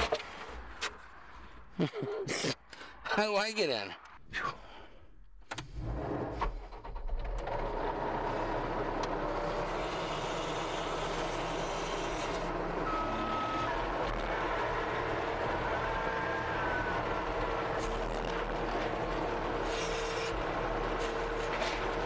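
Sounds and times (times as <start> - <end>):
skid steer engine running: 5.9 - 22.0.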